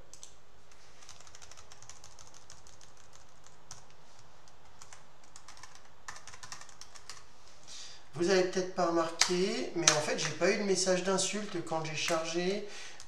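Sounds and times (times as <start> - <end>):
computer keyboard typing: 1.0 - 7.3.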